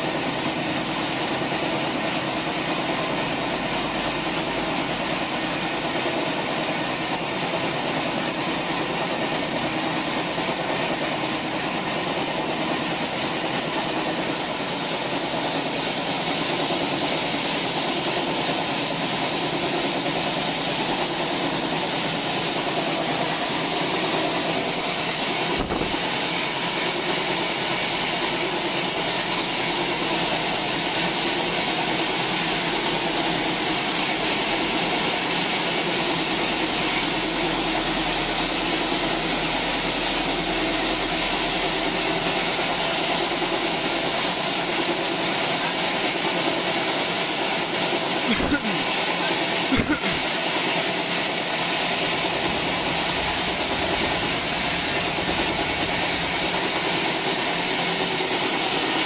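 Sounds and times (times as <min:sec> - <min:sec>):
band saw running with whine: 0:00.0 - 0:59.0.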